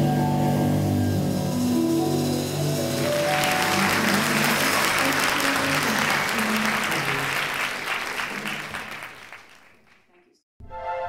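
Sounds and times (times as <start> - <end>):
audience applauding: 2.2 - 10.1.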